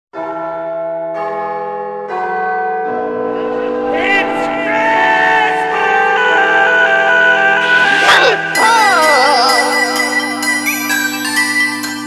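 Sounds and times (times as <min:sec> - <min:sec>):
person singing: 0:03.2 - 0:12.0
bell-like chords: 0:07.5 - 0:12.0.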